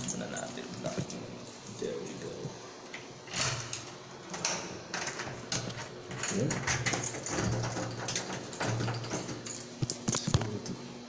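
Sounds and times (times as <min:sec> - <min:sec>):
door lock clicking and rattling: 0:03.3 - 0:10.0.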